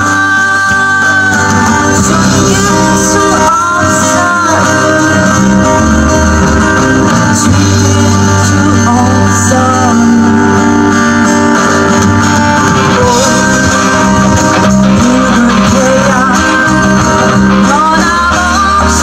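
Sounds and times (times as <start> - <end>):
woman singing into microphone: 0.0 - 6.1, 7.0 - 10.8, 14.6 - 19.0
guitar accompaniment: 0.0 - 19.0.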